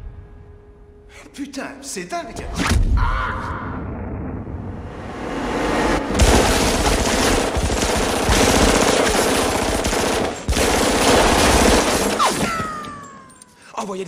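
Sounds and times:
submachine gun automatic fire: 6.2 - 13.0.

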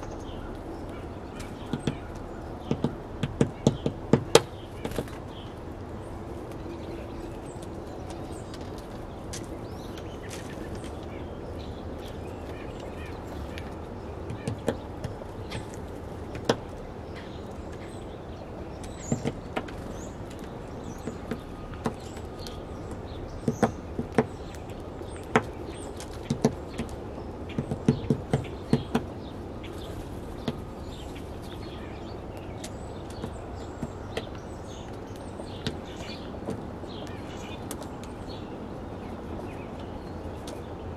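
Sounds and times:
woodpecker tapping on wood: 0.0 - 5.4, 11.7 - 18.1, 18.7 - 31.0, 31.6 - 38.4
low background noise: 0.0 - 40.9.

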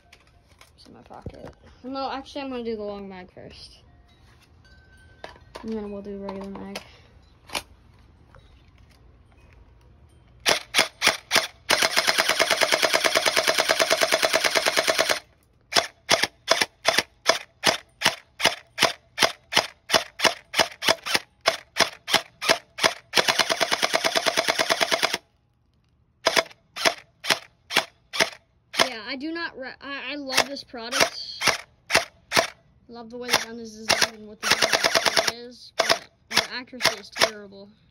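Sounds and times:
gel blaster full-auto burst: 10.5 - 25.2, 26.2 - 29.0, 30.4 - 32.6, 33.3 - 37.4
gel blaster single shots: 26.2 - 29.0, 30.3 - 32.6, 33.3 - 37.4.

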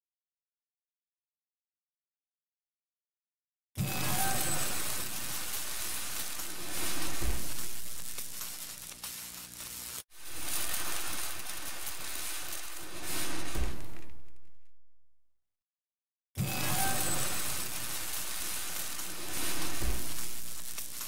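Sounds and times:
sparkler fizzing hiss: 3.8 - 14.3, 16.4 - 21.0.

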